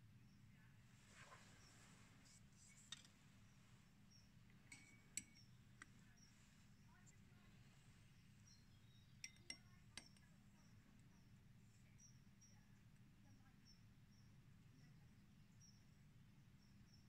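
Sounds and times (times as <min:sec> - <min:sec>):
metal clips tapping glass beakers: 0:02.7 - 0:03.2, 0:04.5 - 0:06.3, 0:08.9 - 0:10.4.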